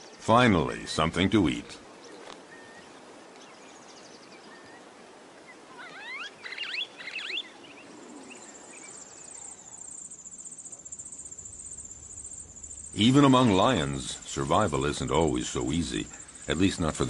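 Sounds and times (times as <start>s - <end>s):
soft steady hiss: 0.0s - 17.0s
quick chirping calls: 5.7s - 17.0s
high insect trill: 8.0s - 17.0s.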